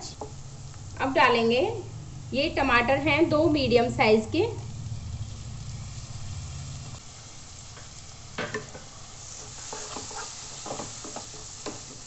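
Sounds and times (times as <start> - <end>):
vegetables sizzling in oil: 0.0 - 12.0
wooden spatula scraping pan: 9.2 - 12.0.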